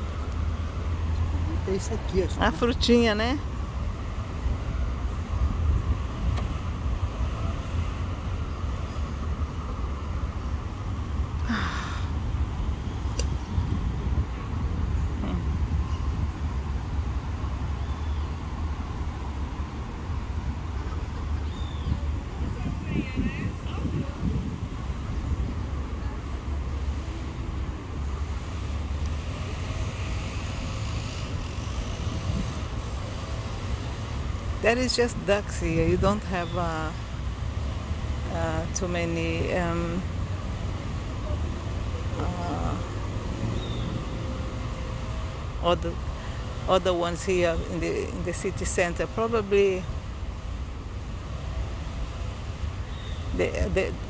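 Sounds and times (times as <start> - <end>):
city road traffic hum: 0.0 - 54.0.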